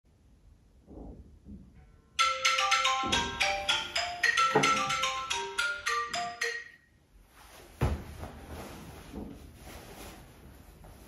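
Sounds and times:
marimba-like melody: 2.2 - 6.9.

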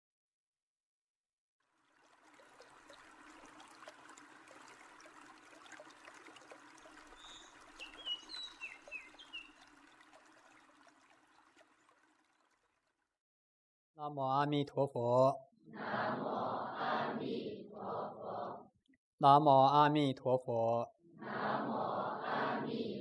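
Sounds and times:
faint trickling stream: 1.6 - 13.2
bird chirps: 7.2 - 9.6.

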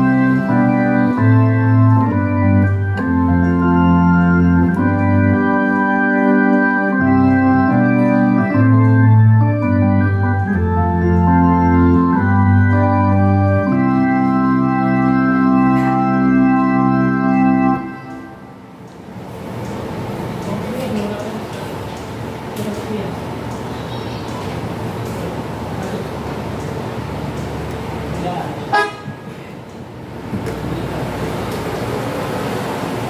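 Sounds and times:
synthesizer organ chords: 0.0 - 22.6.

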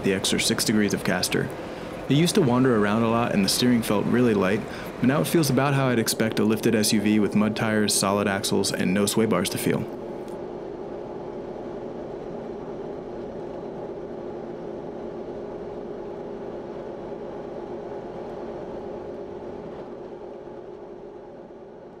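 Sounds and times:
road and engine drone: 0.0 - 10.4
steady hum: 0.0 - 22.0.

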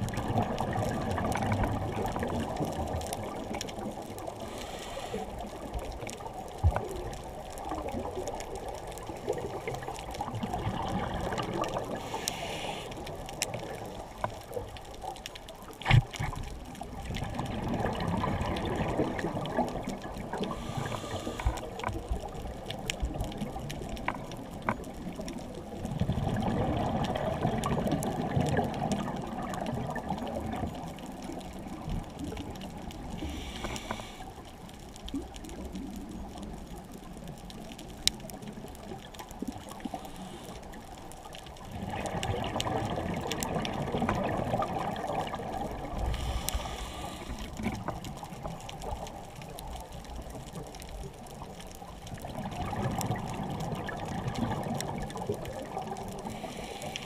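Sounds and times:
scuba regulator exhaled air bubbles: 17.0 - 21.7, 25.9 - 30.6, 41.7 - 48.0, 52.2 - 57.0.

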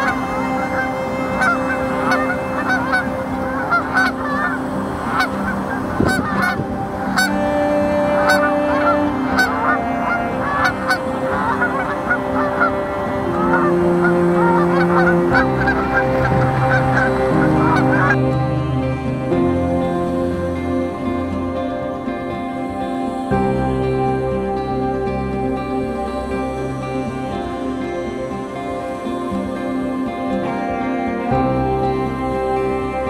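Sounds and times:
geese honking: 0.0 - 19.2
soft music of held notes: 0.0 - 33.0.

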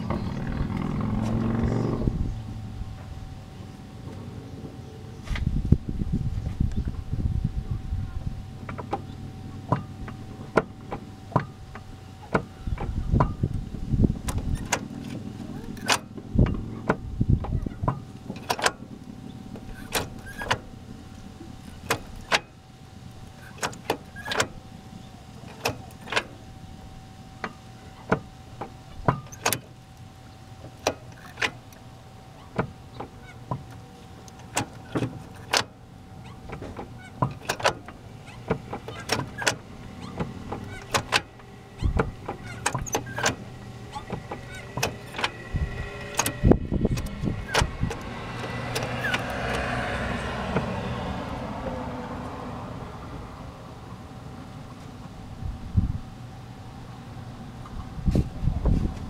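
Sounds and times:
steady low hum: 0.0 - 59.0
gear shift clicking and clunking: 8.5 - 24.6, 25.4 - 26.5, 27.4 - 51.2.

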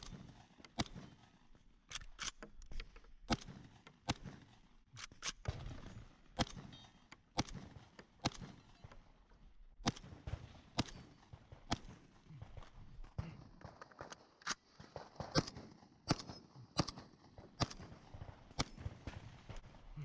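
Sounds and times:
shotgun shots: 0.0 - 1.4, 3.3 - 8.7, 9.8 - 12.3, 14.5 - 20.0.

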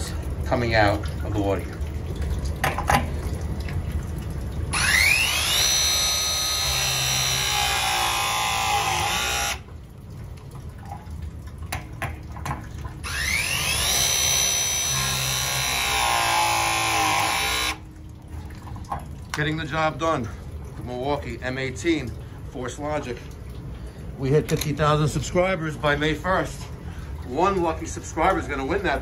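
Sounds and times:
press tool motor whine: 4.8 - 9.6, 13.1 - 17.8.

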